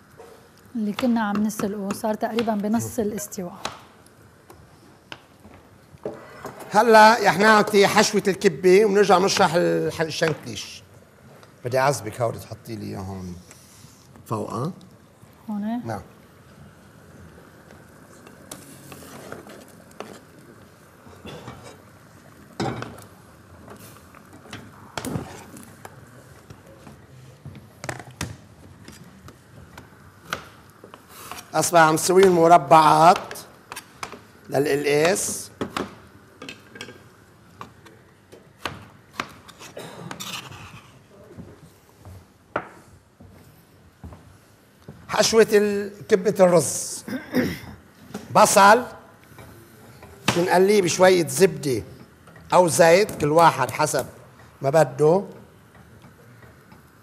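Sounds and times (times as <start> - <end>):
knife scraping plastic cutting board: 39.1 - 41.0.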